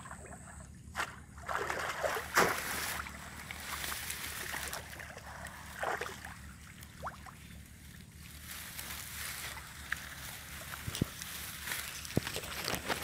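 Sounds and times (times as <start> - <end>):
water splashing: 0.0 - 7.5
water sloshing: 0.0 - 13.0.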